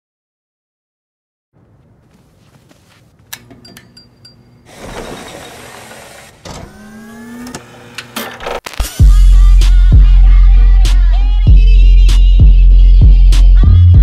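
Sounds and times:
motor-like whir: 4.7 - 8.6.

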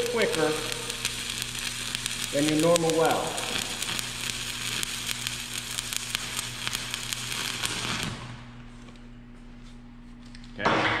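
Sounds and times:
welding arc crackling: 0.0 - 8.7
steady low hum: 0.0 - 11.0.

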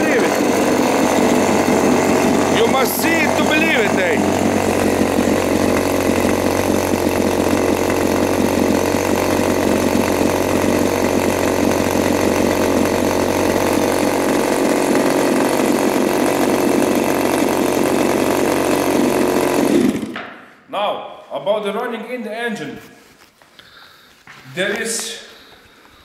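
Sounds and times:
two-stroke engine running: 0.0 - 20.2.

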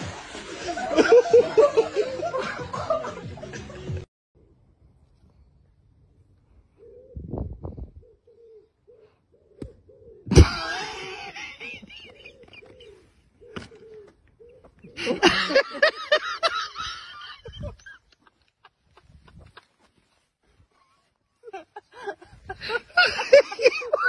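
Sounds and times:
pigeon cooing: 6.7 - 10.4, 11.8 - 15.2.

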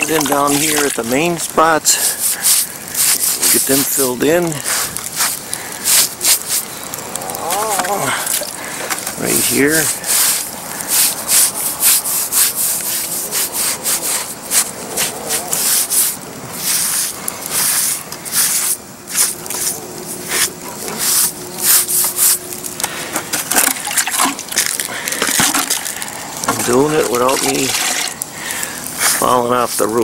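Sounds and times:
sponge scraping on cement: 0.0 - 6.6, 9.3 - 22.4, 29.0 - 30.0.

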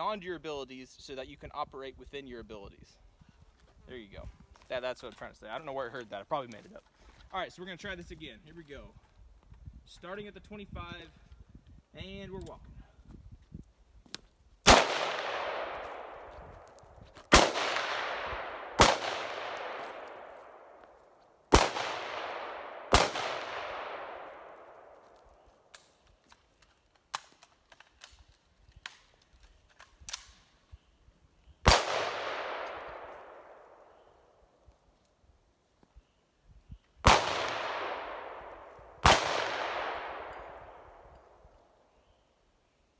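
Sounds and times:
gunshots with rolling echo: 14.6 - 25.1, 31.6 - 34.4, 37.0 - 41.5.

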